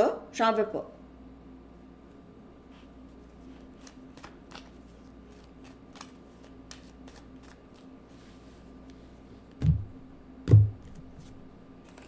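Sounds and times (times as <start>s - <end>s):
steady low hum: 0.0s - 12.0s
cards shuffling clicks: 3.2s - 7.9s, 10.8s - 12.0s.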